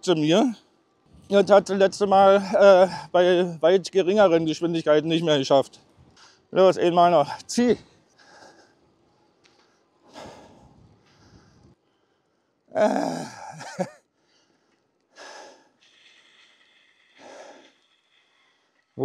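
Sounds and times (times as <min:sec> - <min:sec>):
man breathing hard: 0:08.1 - 0:08.8, 0:10.0 - 0:18.9.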